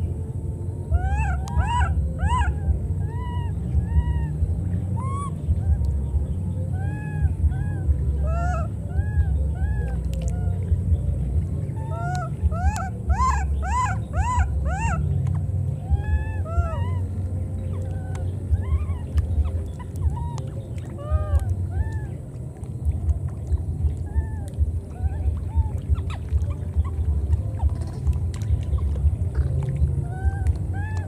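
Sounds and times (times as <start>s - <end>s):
low rumble: 0.0s - 31.0s
baby monkeys crying: 0.9s - 4.4s, 5.0s - 5.9s, 6.7s - 10.6s, 11.8s - 15.1s, 15.8s - 22.2s, 30.1s - 31.0s.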